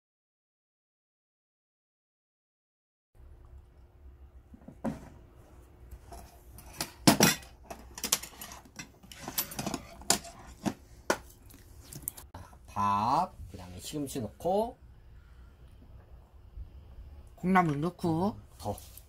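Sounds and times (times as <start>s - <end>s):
dishes and containers knocking and clinking: 4.6s - 5.2s, 6.1s - 11.3s.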